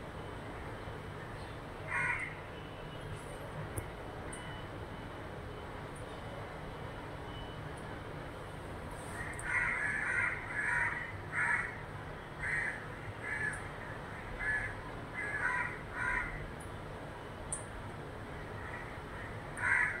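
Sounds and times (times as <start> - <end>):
crow cawing: 1.9 - 2.4, 9.2 - 11.8, 12.4 - 16.5, 18.6 - 20.0.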